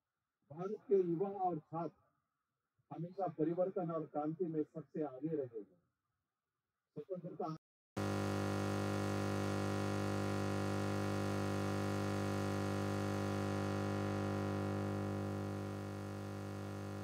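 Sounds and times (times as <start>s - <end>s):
steady electrical hum: 8.0s - 17.0s.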